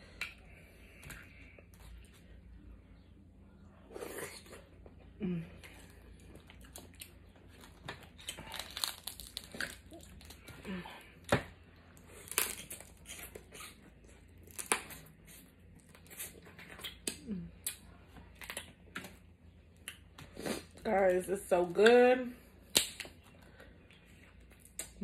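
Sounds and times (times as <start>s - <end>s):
plastic bag crinkling: 7.6s - 10.4s
crab shells cracking: 7.9s - 10.4s.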